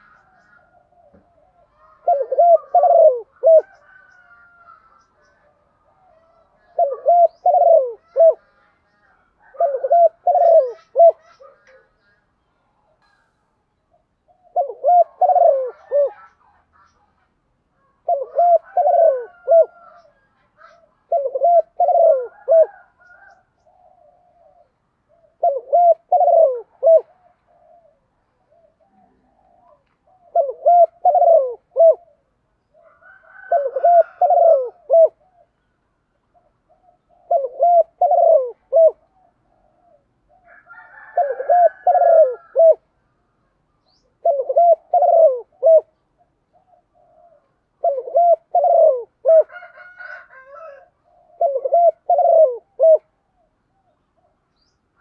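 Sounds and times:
dove cooing: 0.0s - 12.2s, 13.9s - 35.6s, 36.3s - 43.0s, 43.8s - 55.0s.

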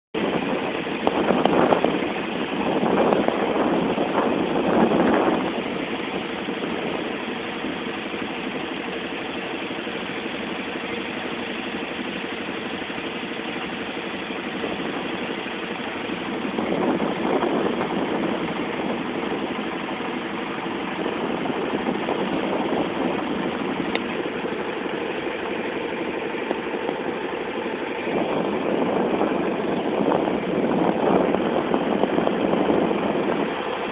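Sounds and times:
boat engine running: 0.2s - 33.9s
rushing water noise: 0.2s - 33.9s.

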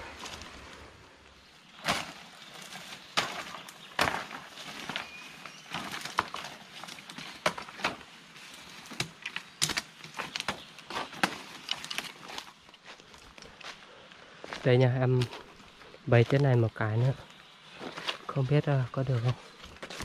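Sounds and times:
footsteps crunching leaf litter: 1.6s - 20.0s
small twigs snapping underfoot: 1.7s - 13.8s.

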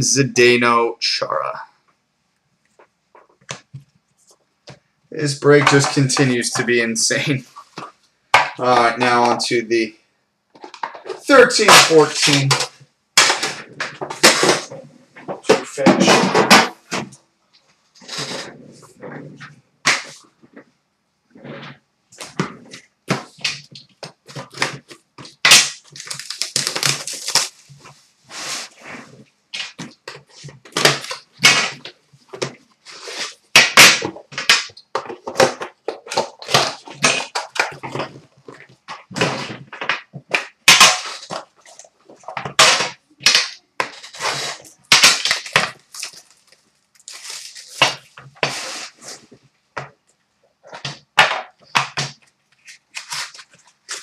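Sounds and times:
box and packaging handled: 22.2s - 33.4s, 34.2s - 49.4s, 50.6s - 54.0s
plastic shrink wrap crackling: 22.7s - 28.8s, 40.2s - 49.4s, 51.7s - 54.0s.

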